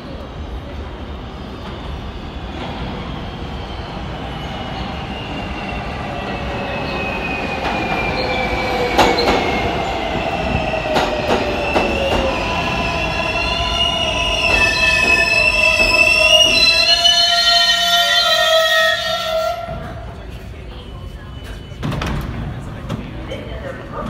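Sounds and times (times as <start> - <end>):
subway train electric whine: 0.0 - 24.0
train wheels rumbling: 0.0 - 24.0.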